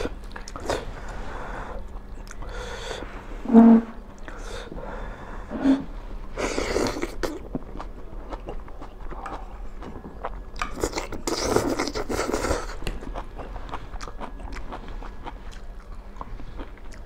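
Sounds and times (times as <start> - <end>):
chewing: 6.6 - 17.0.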